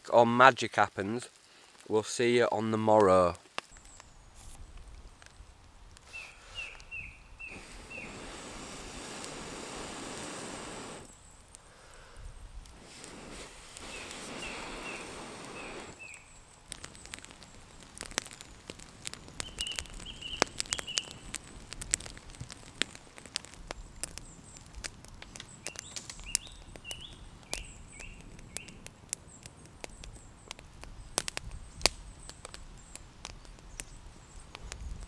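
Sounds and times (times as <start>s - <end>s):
soft rain hiss: 0.0s - 35.0s
small bird chirping: 6.1s - 8.2s, 13.9s - 17.2s, 19.4s - 21.2s, 25.4s - 32.9s
water dripping onto leaves: 11.4s - 35.0s.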